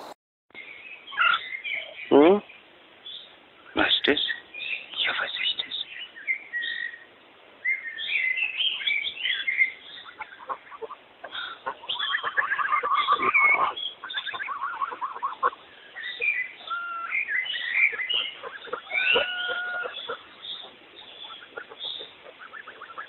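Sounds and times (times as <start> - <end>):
geese honking and chattering: 1.1 - 2.0, 8.8 - 23.0.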